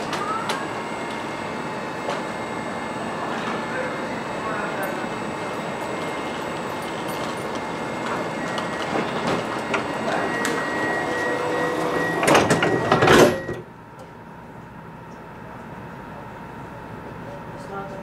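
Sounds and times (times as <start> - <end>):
train cabin hum: 0.0 - 18.0
high warning tone: 0.2 - 13.8
train doors sliding shut: 2.0 - 2.4, 5.6 - 13.6.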